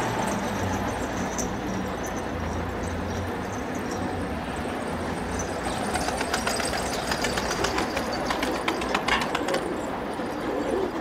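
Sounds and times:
pigeon wings flapping: 5.9s - 9.8s.

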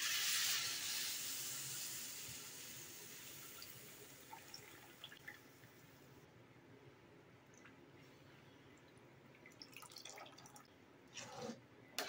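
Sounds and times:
liquid hissing in hot oil: 0.0s - 4.2s
soft drips: 7.4s - 10.8s.

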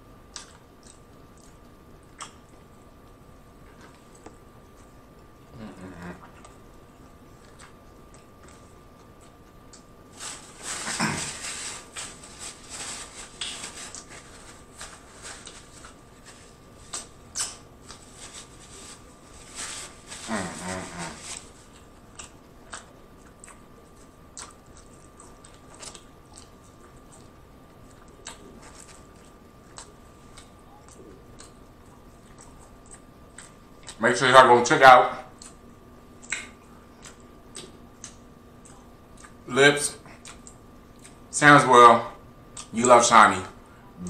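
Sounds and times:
person chewing wetly: 0.3s - 10.0s, 13.3s - 19.3s, 21.4s - 34.0s, 35.3s - 41.3s
person humming: 5.5s - 6.4s, 20.1s - 21.4s.

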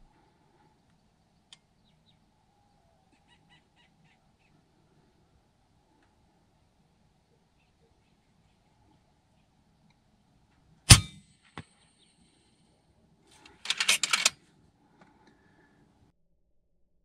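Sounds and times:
air rifle shot: 10.9s - 11.2s
quick run of clicks: 13.4s - 14.3s.

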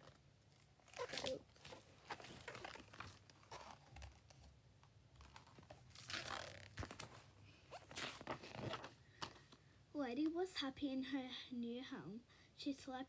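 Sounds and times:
paper pages rustling: 0.9s - 4.5s, 5.1s - 9.6s.

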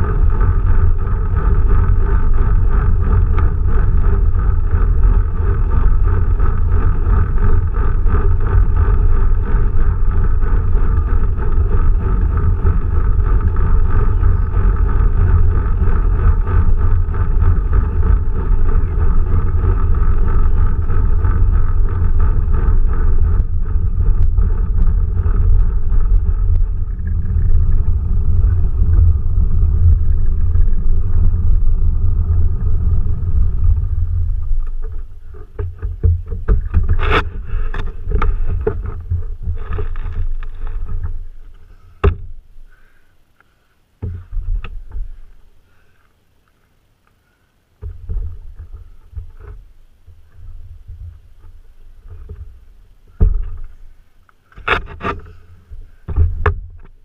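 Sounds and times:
tyre and road rumble: 0.0s - 57.0s
knocks and clunks: 34.6s - 41.2s, 53.2s - 53.8s.

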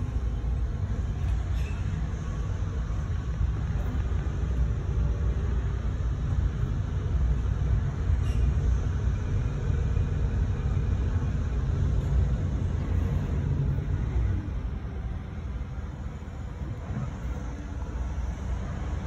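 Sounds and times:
vehicle rumble inside a car: 0.0s - 19.0s.

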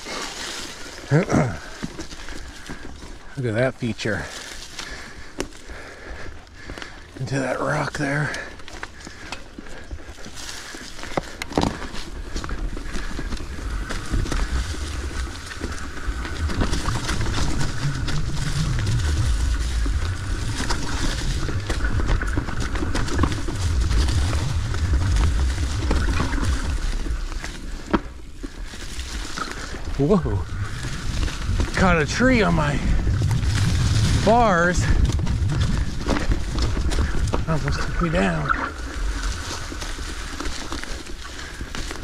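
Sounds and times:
bike knocking and rattling: 0.0s - 42.0s
bike tyres crunching dry leaves: 0.0s - 42.0s
wind rumble on microphone: 11.7s - 41.8s.

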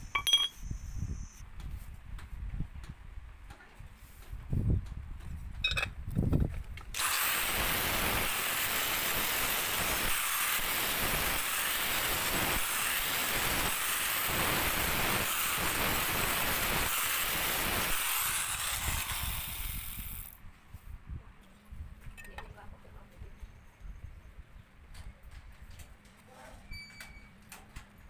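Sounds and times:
angle grinder grinding steel: 7.0s - 20.4s.

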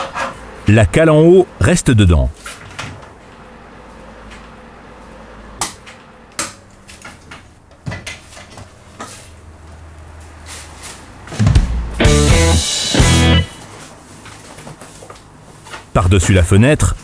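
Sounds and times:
loud guitar music: 11.4s - 13.7s.

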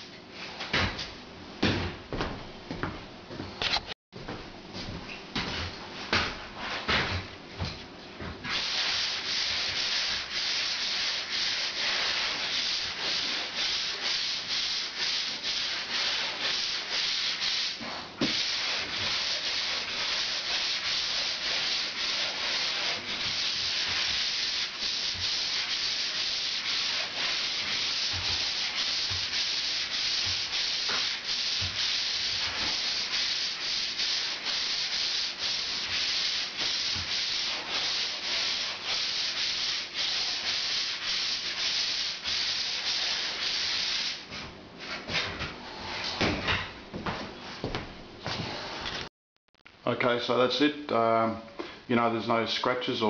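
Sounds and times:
sponge sander scratching plaster: 8.5s - 44.3s.

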